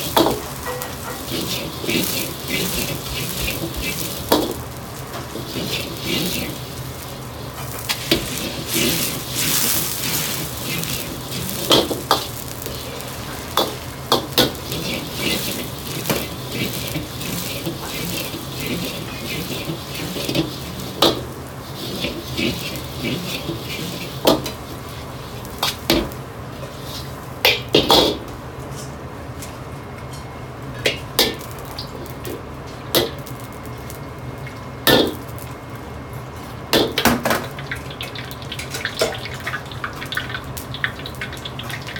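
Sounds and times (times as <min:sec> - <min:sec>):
metal clanks of wok: 0:00.0 - 0:07.0, 0:07.6 - 0:21.2
noodles sizzling in oil: 0:00.0 - 0:28.2, 0:31.0 - 0:41.9.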